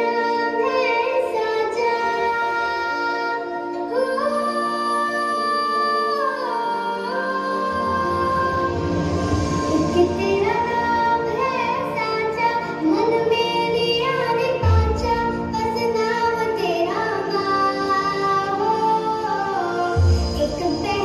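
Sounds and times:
instrumental backing: 0:00.0 - 0:21.0.

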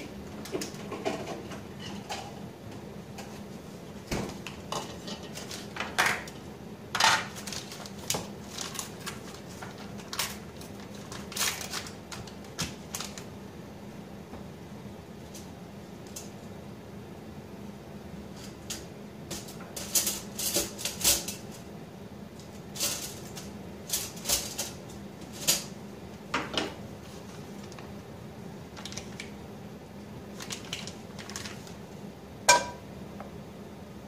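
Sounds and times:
kitchenware clicks and clatters: 0:00.0 - 0:02.4, 0:04.1 - 0:13.2, 0:18.5 - 0:21.6, 0:22.8 - 0:26.8, 0:32.5 - 0:32.8
range hood fan humming: 0:00.0 - 0:34.0.

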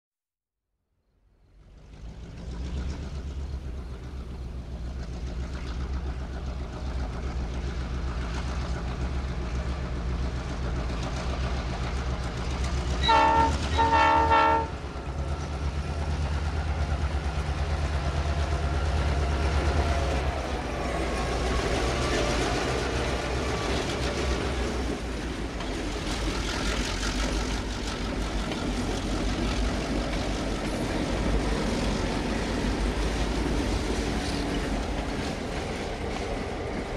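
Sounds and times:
diesel locomotive engine droning: 0:01.1 - 0:36.9
wheel and rail noise: 0:01.4 - 0:36.9
train horn blasts: 0:13.0 - 0:14.8.

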